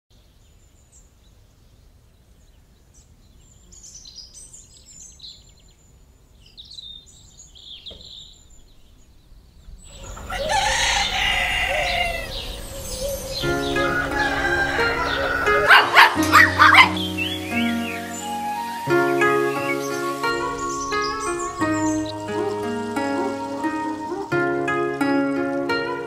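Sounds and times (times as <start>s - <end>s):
small birds chirping: 0.4s - 25.1s
rooster crowing: 9.9s - 18.0s.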